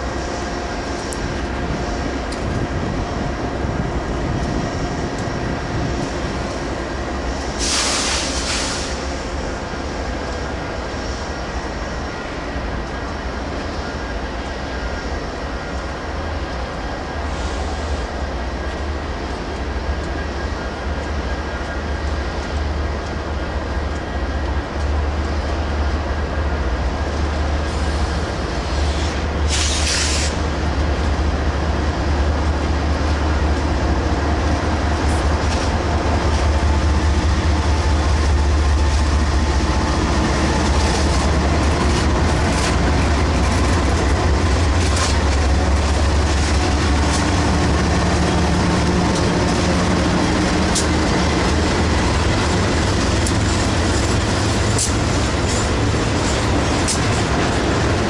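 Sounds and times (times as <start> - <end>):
train wheels on rails: 0.0 - 58.0
deep diesel engine drone: 30.3 - 58.0.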